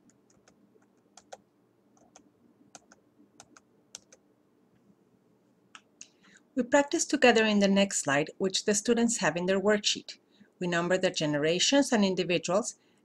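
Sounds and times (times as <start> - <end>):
computer keys clicking: 0.0 - 1.4, 2.0 - 4.2.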